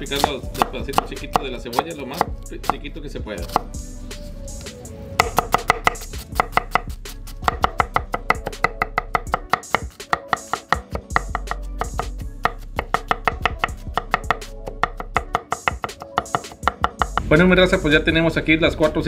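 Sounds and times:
knife chopping on wooden board: 0.1s - 2.3s, 3.4s - 3.7s, 5.2s - 17.3s.

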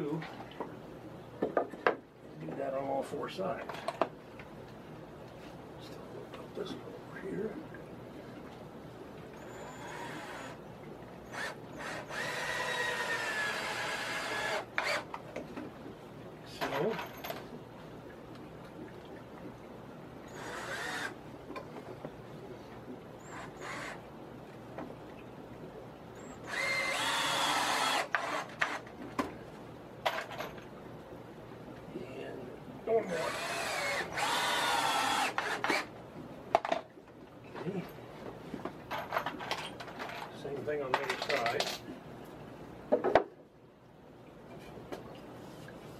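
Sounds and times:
cordless drill driving screw: 9.4s - 10.6s, 11.3s - 15.1s, 20.3s - 21.2s, 23.3s - 24.0s, 26.4s - 28.8s, 33.2s - 35.9s.

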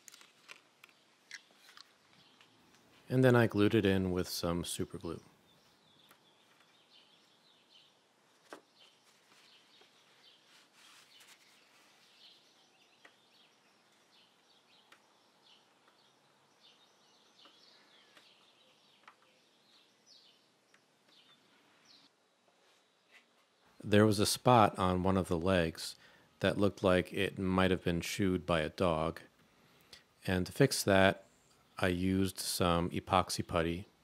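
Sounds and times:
faint bird chirps: 5.1s - 23.8s.

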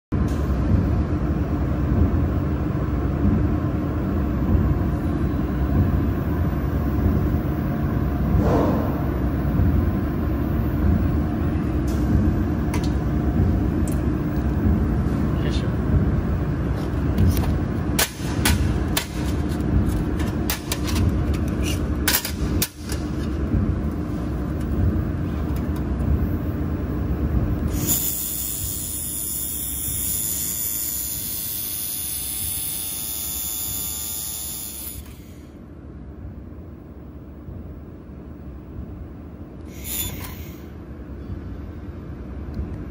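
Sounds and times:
low rumble: 0.2s - 19.0s
laser welder hissing and whining: 27.6s - 35.5s, 39.7s - 40.7s.

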